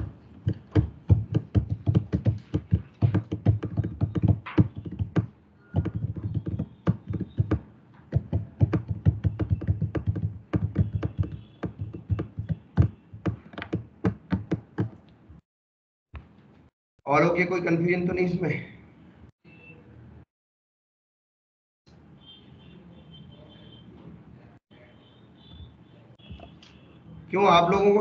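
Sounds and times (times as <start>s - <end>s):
typing on keyboard: 0.0s - 15.0s.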